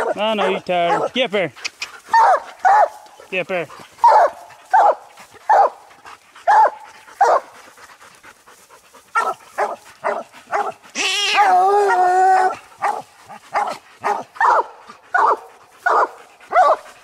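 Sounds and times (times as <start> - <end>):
dogs barking: 0.0 - 7.7, 9.1 - 17.0
dog bawling: 9.2 - 14.6.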